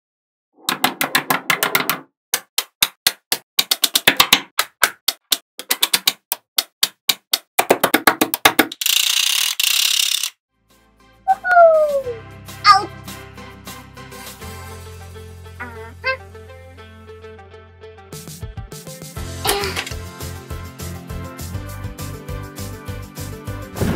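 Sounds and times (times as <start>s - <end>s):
magnetic balls clicking together: 0.7s - 10.3s.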